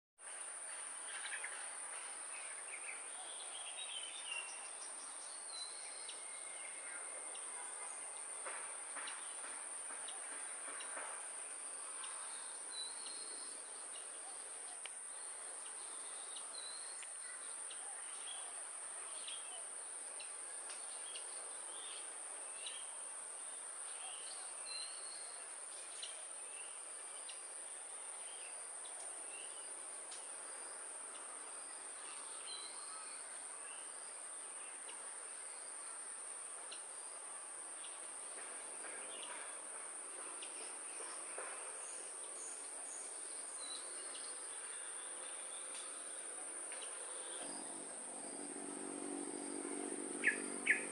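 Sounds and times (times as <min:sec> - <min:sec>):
insects droning: 0:00.2 - 0:50.9
bird chirps: 0:49.6 - 0:50.9.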